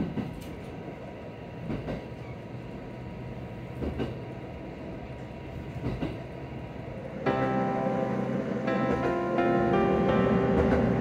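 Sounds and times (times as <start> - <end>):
railcar engine rumble: 0.0 - 11.0
wheels clacking over rail joints: 3.7 - 4.2, 5.7 - 6.3, 8.7 - 11.0.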